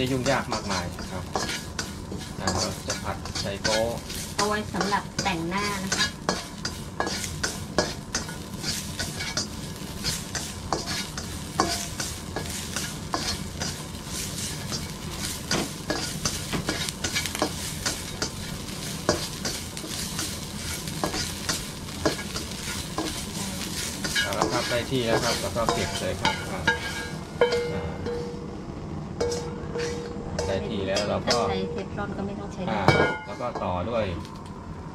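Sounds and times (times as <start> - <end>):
spatula scraping a wok: 0.0 - 28.4, 29.2 - 31.6
food sizzling: 0.0 - 34.9
low hum: 25.5 - 34.9.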